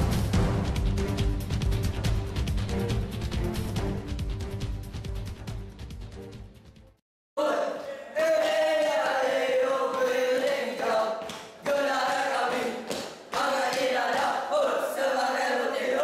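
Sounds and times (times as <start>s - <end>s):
boys chanting in unison: 7.4s - 16.0s.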